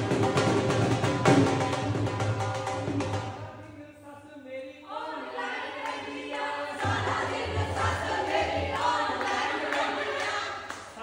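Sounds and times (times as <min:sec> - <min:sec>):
women singing and cheering: 0:04.9 - 0:10.8.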